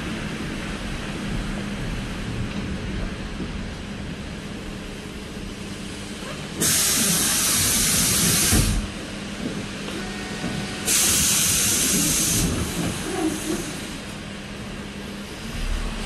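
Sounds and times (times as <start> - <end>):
compressed air hiss: 10.9 - 14.0
bus engine humming: 11.8 - 16.0
low thump: 15.4 - 16.0.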